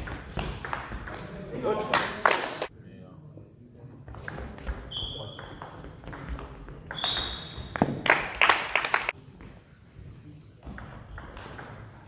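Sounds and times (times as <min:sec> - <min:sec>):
shoes squeaking on floor: 0:04.7 - 0:08.0.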